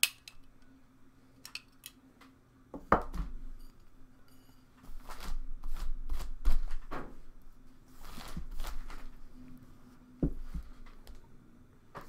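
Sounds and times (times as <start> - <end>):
hands rustling and scraping: 7.8 - 11.2.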